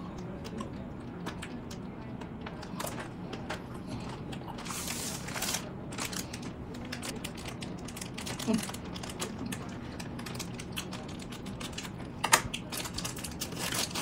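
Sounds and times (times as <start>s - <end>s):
plastic wrappers crackling: 4.5s - 11.9s, 12.5s - 14.0s.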